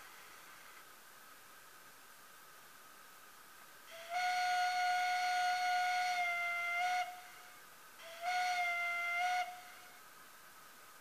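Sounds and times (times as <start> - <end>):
steam whistle blasts from small speaker: 3.9 - 10.0.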